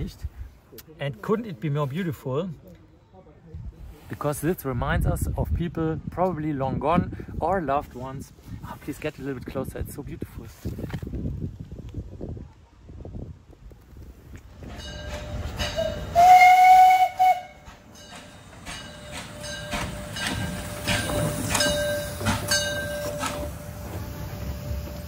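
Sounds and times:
train wheels knocking rhythmically: 14.7s - 16.2s, 17.1s - 25.0s
steam locomotive whistle: 15.4s - 17.8s.

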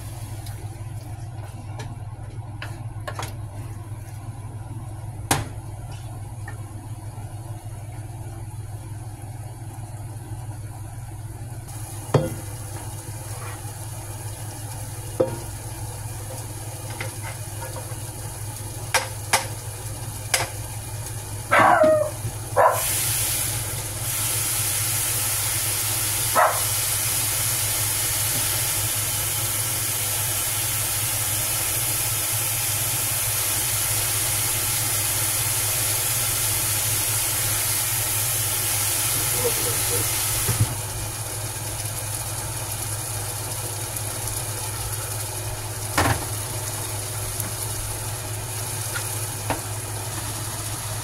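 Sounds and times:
food sizzling: 0.0s - 1.2s, 11.4s - 51.0s.

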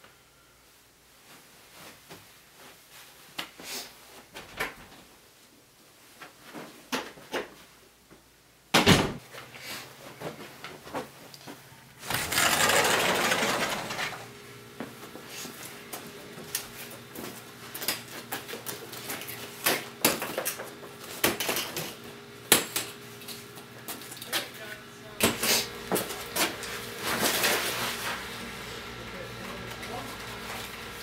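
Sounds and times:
loud scraping rush: 12.0s - 14.3s.

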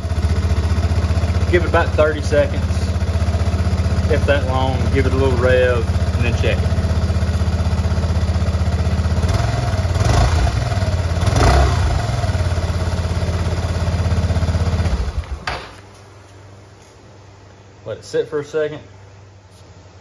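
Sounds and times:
scooter engine idling and revving: 0.0s - 15.5s.

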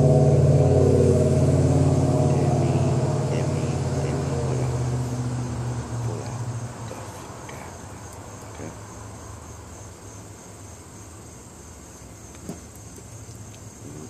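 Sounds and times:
passing vehicle engine hum: 0.0s - 11.0s
insects chirring: 0.0s - 14.0s
faint ticks: 12.3s - 13.7s.

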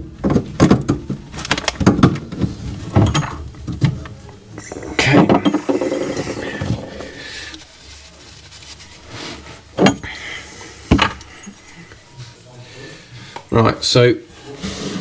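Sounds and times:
handling and rubbing noise: 3.6s - 12.6s, 14.3s - 15.0s.

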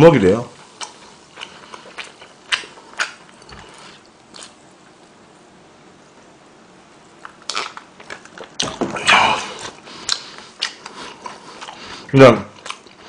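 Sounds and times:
man gulping and swallowing: 8.3s - 10.8s.

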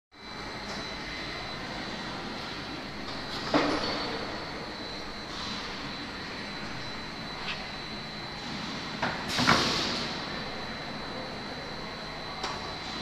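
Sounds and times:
conveyors rolling with whine: 0.2s - 13.0s.

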